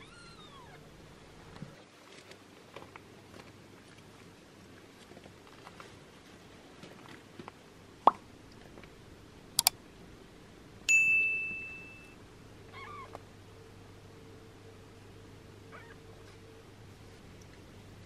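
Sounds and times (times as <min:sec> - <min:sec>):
bright bell ding: 0:10.9 - 0:12.2.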